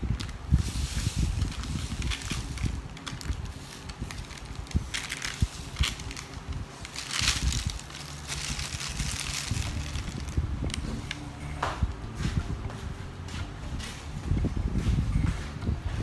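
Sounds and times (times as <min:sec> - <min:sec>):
plastic bag crinkling: 0:00.0 - 0:11.3
sugar rustling and crunching: 0:00.0 - 0:11.7.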